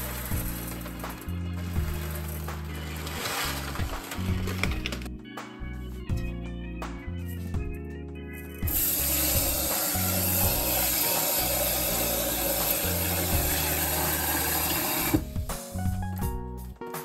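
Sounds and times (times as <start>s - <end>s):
tap water filling a pot: 8.7s - 15.3s.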